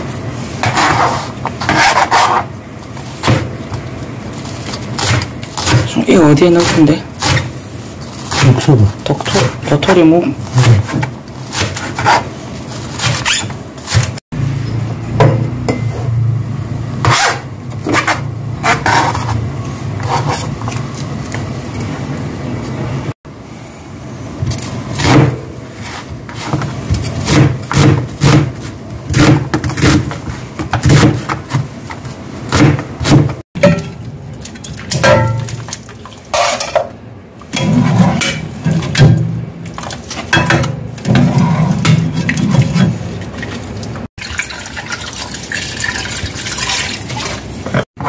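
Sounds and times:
knife chopping on cutting board: 26.4 - 31.6, 32.5 - 33.4.

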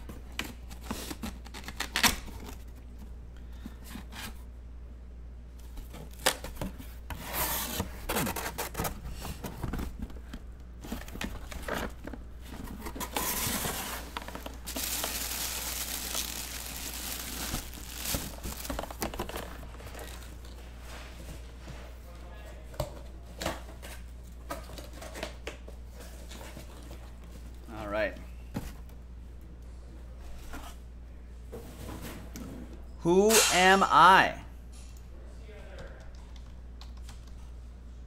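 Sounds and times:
knocks and handling noise: 8.0 - 21.9
cardboard tearing and crinkling: 12.8 - 20.4.

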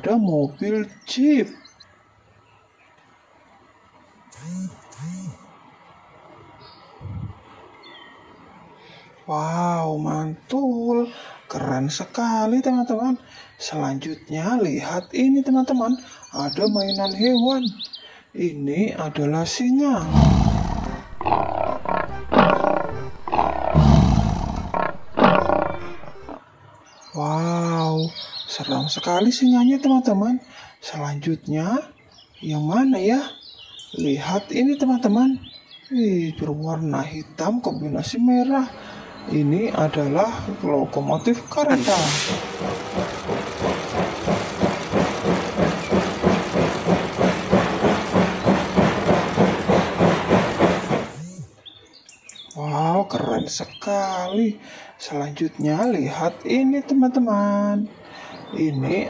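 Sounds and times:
lion grunts: 20.0 - 26.4
lion roaring: 20.0 - 26.4
steam locomotive chuffing: 20.0 - 26.4, 38.8 - 51.4.

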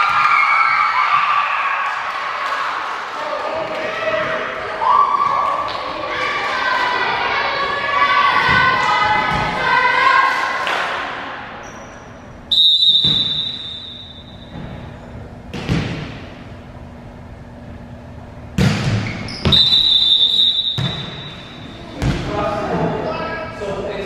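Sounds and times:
voices: 2.2 - 12.0
referee whistle blast: 12.5 - 14.5, 19.3 - 21.6
volleyball being struck: 12.9 - 14.8, 15.5 - 16.4, 18.6 - 21.4.

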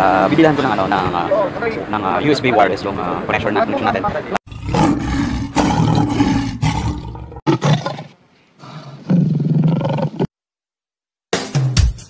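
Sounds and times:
lion roaring: 4.5 - 10.3.

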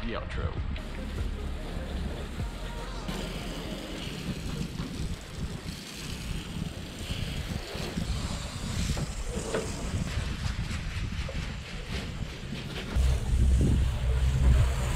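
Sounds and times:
garden hose spraying water: 0.8 - 10.4, 13.0 - 14.9
wind buffeting microphone: 3.1 - 14.9.

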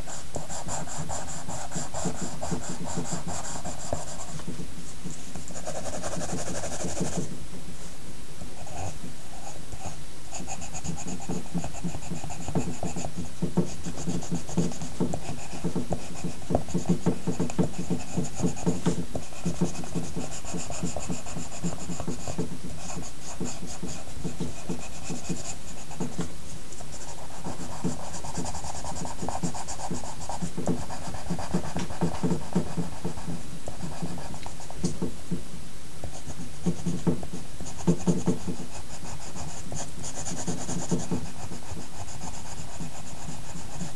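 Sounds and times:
pencil scratching on paper: 0.0 - 4.6, 5.4 - 7.4, 8.6 - 35.2, 36.1 - 43.9.

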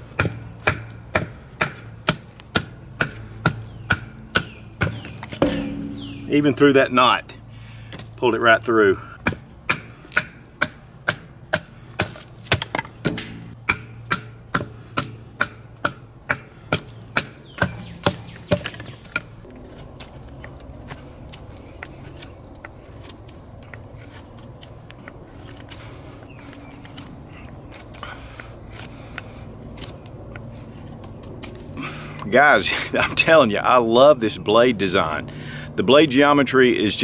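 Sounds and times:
baton knocking on knife: 5.4 - 6.4, 12.5 - 15.1.

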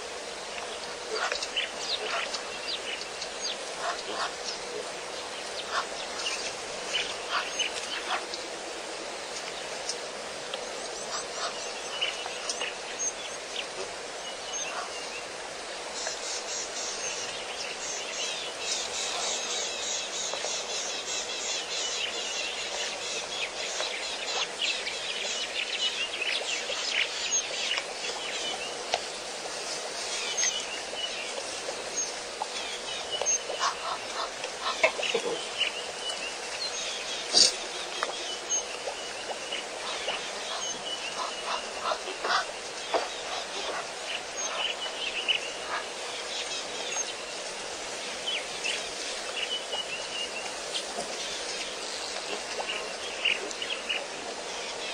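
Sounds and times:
outdoor background hiss: 0.0 - 54.9
birds chirping: 10.6 - 15.3, 30.1 - 47.5.

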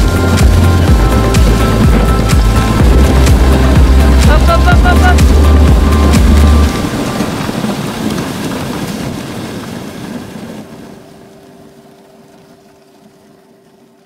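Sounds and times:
music with heavy bass: 0.0 - 6.8
wind on microphone: 0.0 - 11.1
sled moving over snow: 0.0 - 14.0.

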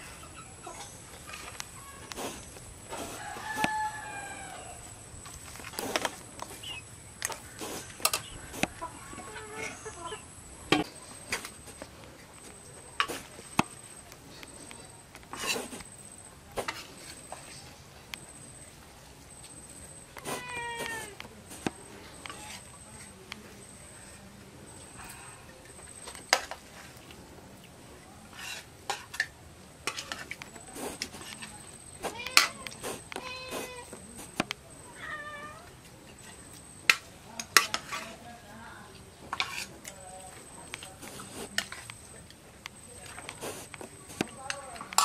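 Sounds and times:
rooster crowing: 2.9 - 4.9
chickens calling: 6.4 - 11.2.

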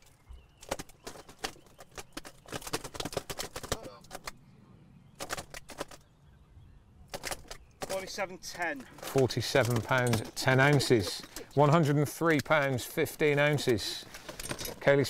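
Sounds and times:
weigh sling clicking and rattling: 7.1 - 15.0.

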